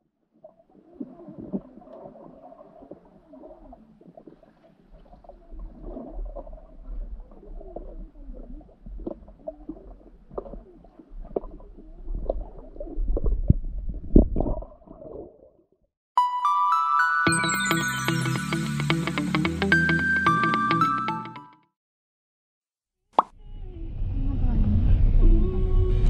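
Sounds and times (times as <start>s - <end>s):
underwater gurgling and bubbling: 0.5s - 15.6s
low rumble of swimmer: 0.6s - 15.2s.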